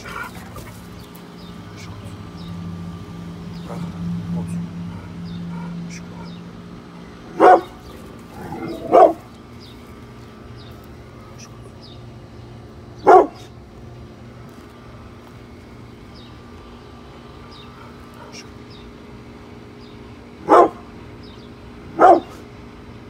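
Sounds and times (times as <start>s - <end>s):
dog barking sharply: 7.4s - 7.8s, 8.8s - 9.2s, 13.0s - 13.5s, 20.4s - 20.8s, 21.9s - 22.4s.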